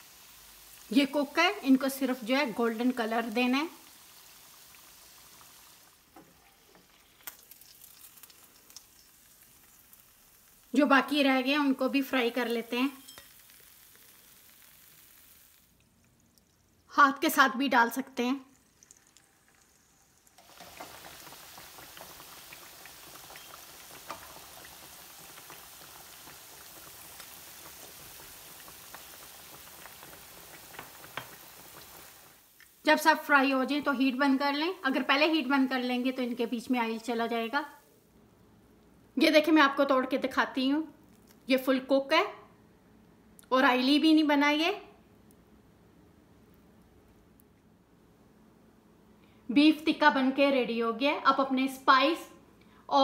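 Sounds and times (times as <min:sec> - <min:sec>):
meat sizzling in hot oil: 0:00.0 - 0:16.9, 0:18.5 - 0:38.0.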